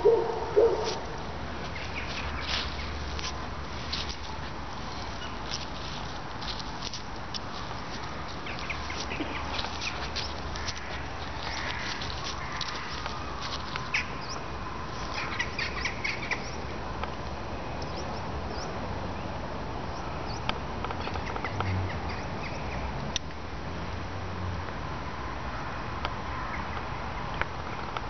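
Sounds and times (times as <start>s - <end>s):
outdoor background hiss: 0.0s - 28.0s
bird calls and chirps: 1.7s - 3.1s, 8.4s - 16.7s.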